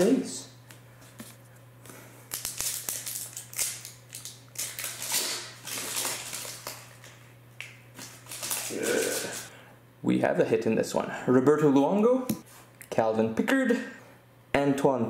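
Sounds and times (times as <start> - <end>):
plastic wrapper tearing and crinkling: 2.3 - 7.2, 8.0 - 9.5.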